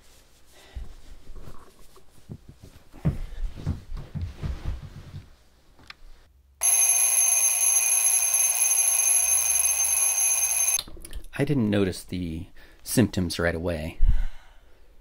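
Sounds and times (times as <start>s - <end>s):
alarm clock ringing: 6.6s - 10.8s.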